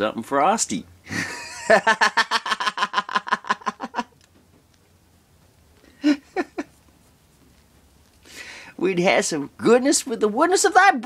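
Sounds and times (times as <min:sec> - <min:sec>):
man giggling: 0:01.1 - 0:04.2, 0:05.9 - 0:06.8.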